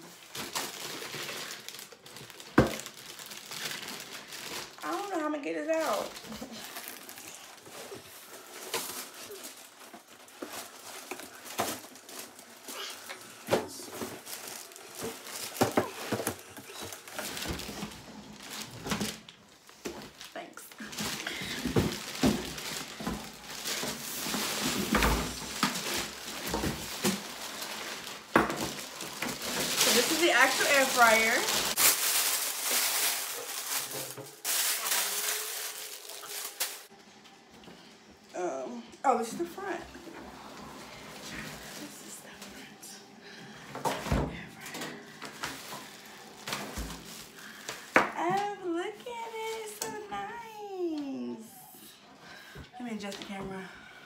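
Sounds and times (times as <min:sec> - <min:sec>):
packaging rustling and crinkling: 0:00.0 - 0:37.0, 0:44.1 - 0:48.1.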